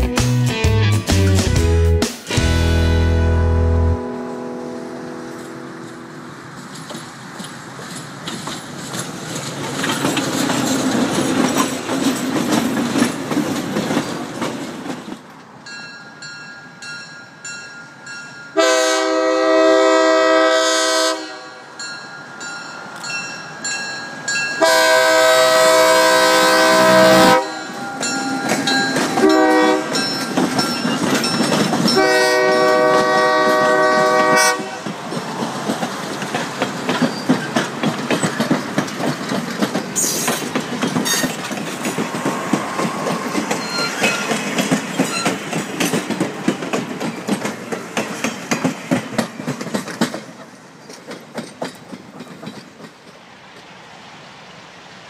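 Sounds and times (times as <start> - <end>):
train wheels clacking over rail joints: 5.9 - 15.4, 26.6 - 53.7
locomotive air horn: 18.6 - 21.7, 24.6 - 27.8, 29.2 - 30.0, 32.0 - 34.9
passenger cars rumbling: 21.8 - 53.1.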